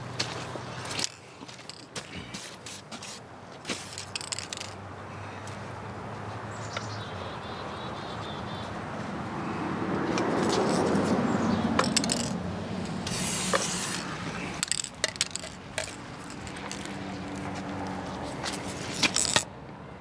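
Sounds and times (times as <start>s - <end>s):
cans clicking and tapping: 11.8s - 12.4s, 13.6s - 16.9s
aerosol spray hissing: 13.1s - 14.1s.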